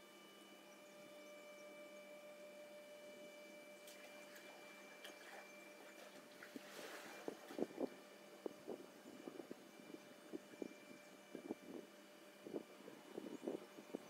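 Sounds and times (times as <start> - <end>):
electrical machine hum: 0.0 - 14.0.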